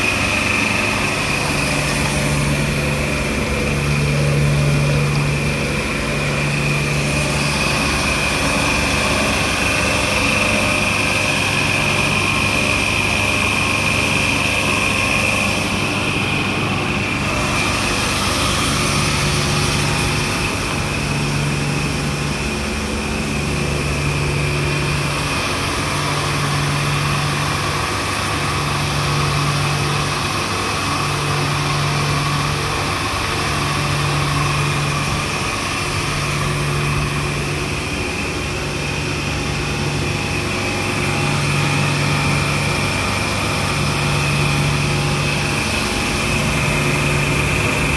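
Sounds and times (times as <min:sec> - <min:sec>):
low intermittent hum: 0:00.0 - 0:47.9
machine drone with high whine: 0:00.0 - 0:47.9.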